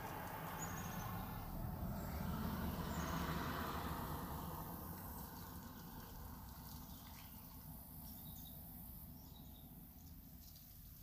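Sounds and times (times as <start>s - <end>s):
low vehicle rumble: 0.0s - 10.6s.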